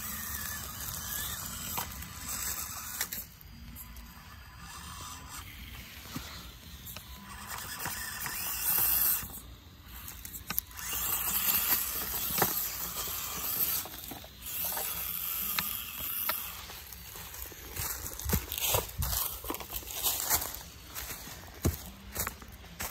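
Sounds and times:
small electric motor whining: 0.0s - 22.9s.

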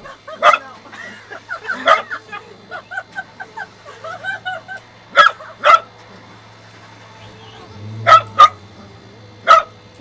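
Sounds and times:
dog barking sharply: 8.1s - 8.6s, 9.5s - 9.8s.

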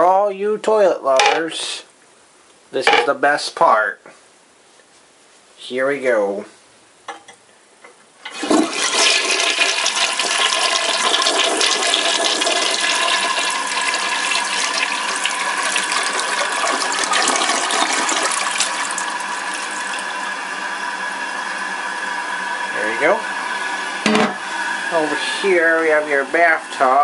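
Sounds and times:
toilet bowl refilling hiss: 8.3s - 26.7s
toilet flushing: 8.3s - 27.0s.

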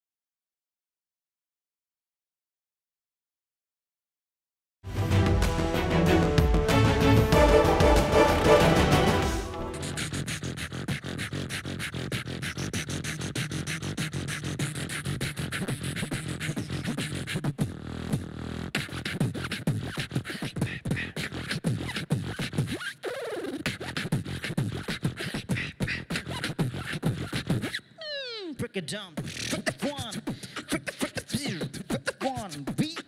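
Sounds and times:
beatbox hip-hop beat: 9.7s - 33.0s.

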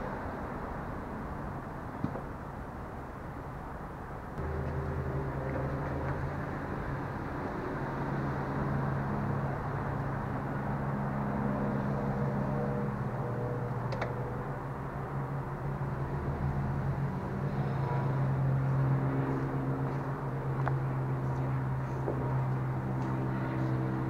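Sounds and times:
car engine running: 4.4s - 6.6s.

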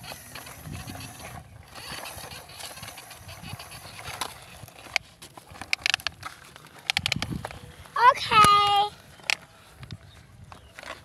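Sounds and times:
faint outdoor background: 0.0s - 11.0s
plastic toy clicks and knocks: 5.6s - 7.6s.

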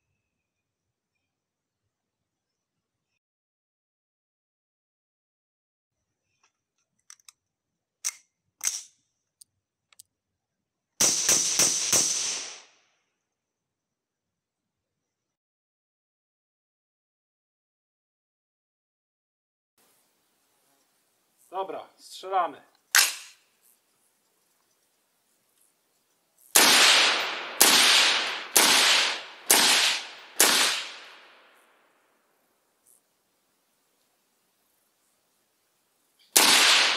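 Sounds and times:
rifle handling clicks: 8.0s - 8.9s
suppressed rifle shots: 11.0s - 12.6s, 26.6s - 31.6s, 36.4s - 36.9s.

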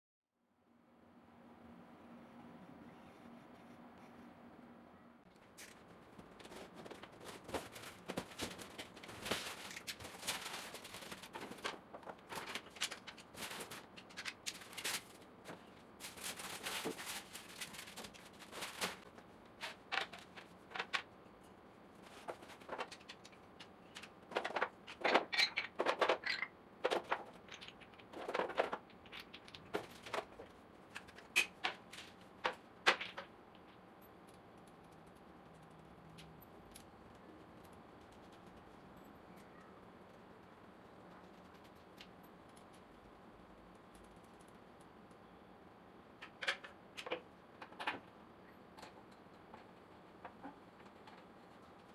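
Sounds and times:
cardboard scraping and rustling: 6.2s - 13.9s, 14.5s - 20.4s.

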